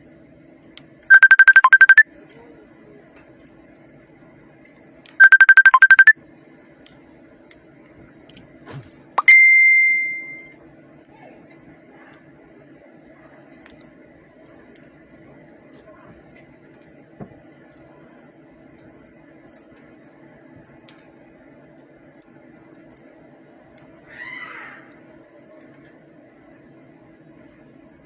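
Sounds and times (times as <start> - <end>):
electronic trilling ring: 1.1 - 2.0, 5.2 - 6.1, 9.2 - 10.6
high ding: 9.2 - 10.5.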